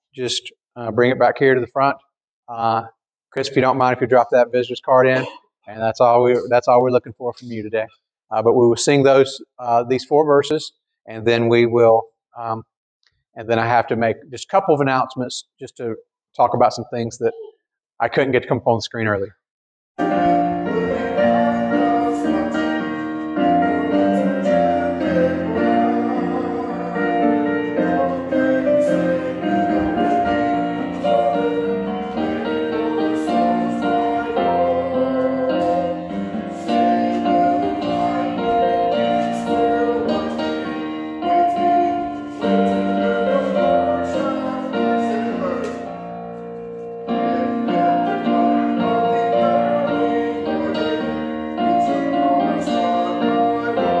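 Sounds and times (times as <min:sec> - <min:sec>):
congregation singing a hymn: 0:20.0 - 0:46.2, 0:47.1 - 0:54.0
piano accompaniment: 0:20.0 - 0:54.0.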